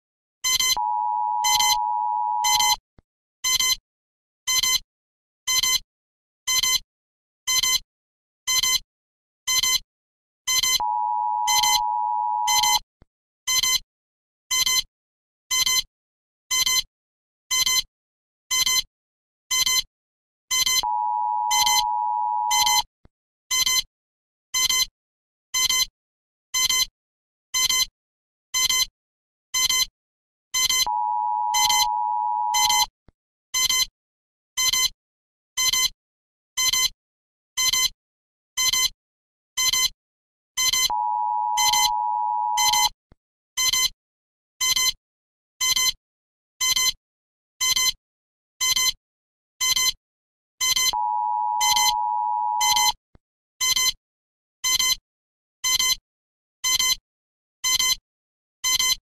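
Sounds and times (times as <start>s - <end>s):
short electronic alarm beeps: 0.4s - 2.8s, 10.5s - 12.8s, 20.5s - 22.9s, 30.6s - 32.9s, 40.6s - 43.0s, 50.7s - 53.0s.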